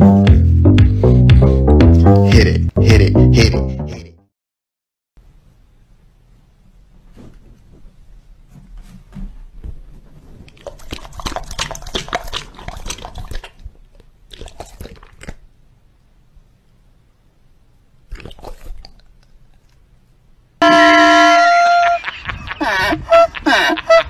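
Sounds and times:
dog lapping from a glass bowl: 10.6 - 13.6.

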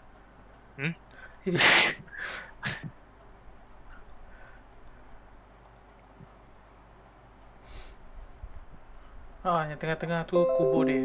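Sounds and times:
faint computer mouse clicks: 3.9 - 5.0, 5.6 - 6.3.

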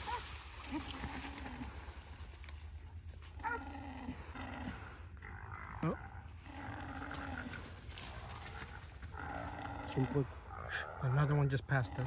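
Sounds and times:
dogs baying: 3.2 - 4.8.

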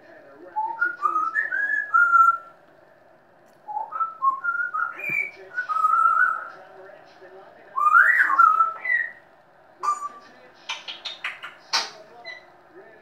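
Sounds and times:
parrot whistling: 0.6 - 2.5, 3.7 - 6.5, 7.8 - 9.2, 9.8 - 12.5.

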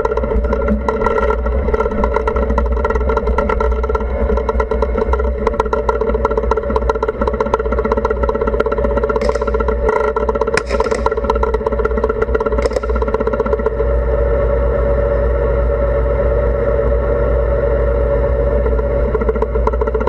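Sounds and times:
dense rattling clatter: 0.0 - 13.8, 19.1 - 20.0.

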